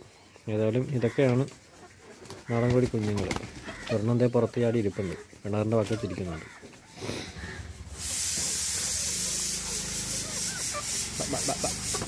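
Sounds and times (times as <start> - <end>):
steady hiss: 6.4 - 12.0
chickens clucking faintly: 8.5 - 12.0.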